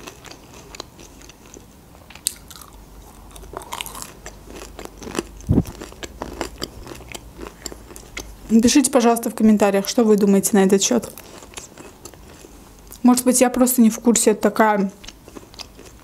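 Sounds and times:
crisp chewing crunches: 0:00.0 - 0:08.5, 0:10.9 - 0:13.0, 0:15.0 - 0:16.0.

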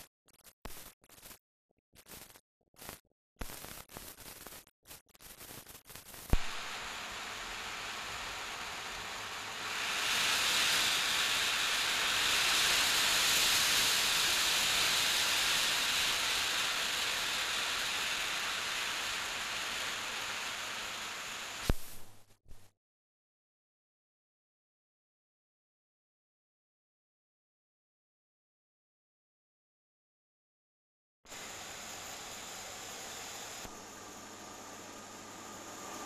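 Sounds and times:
steam hissing: 0:05.3 - 0:22.0, 0:31.3 - 0:36.0.

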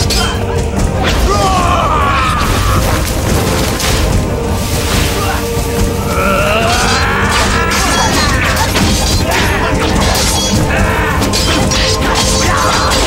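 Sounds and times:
dramatic music: 0:00.0 - 0:13.0
swords clashing: 0:07.3 - 0:13.0.

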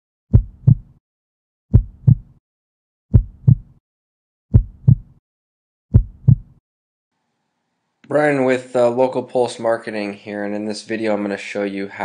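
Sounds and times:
heartbeat double thumps: 0:00.3 - 0:01.0, 0:01.7 - 0:02.4, 0:03.1 - 0:03.8, 0:04.5 - 0:05.2, 0:05.9 - 0:06.6.

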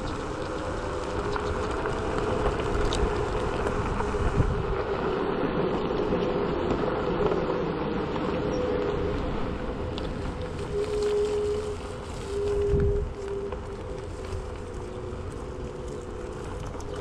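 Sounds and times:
road rumble: 0:00.0 - 0:17.0
wind buffeting microphone: 0:00.0 - 0:17.0.

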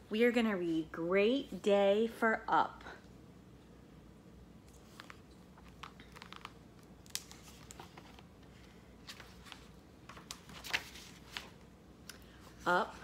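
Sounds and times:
book pages turning: 0:04.6 - 0:11.6
paper rustles and light taps: 0:09.1 - 0:11.6.

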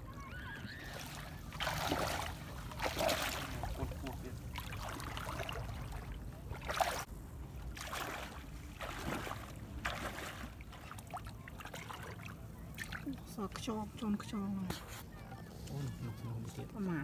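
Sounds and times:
footsteps wading through water: 0:00.2 - 0:13.8.

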